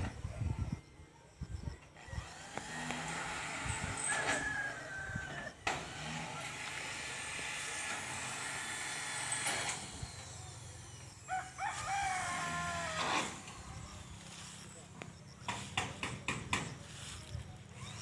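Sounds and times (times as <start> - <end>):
rooster crowing: 3.9 - 5.6, 11.2 - 13.5.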